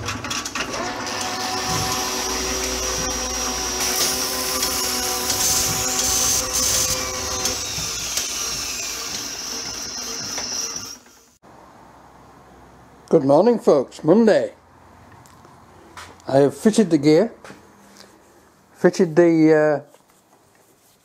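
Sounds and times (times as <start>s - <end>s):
motor-like whir: 0.7s - 11.4s.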